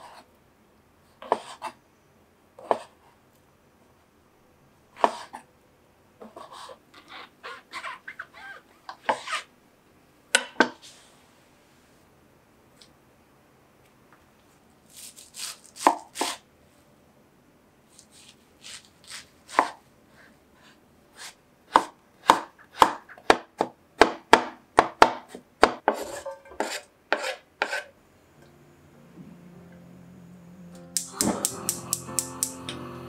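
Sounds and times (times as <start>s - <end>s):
knife chopping on wooden board: 21.7s - 26.0s.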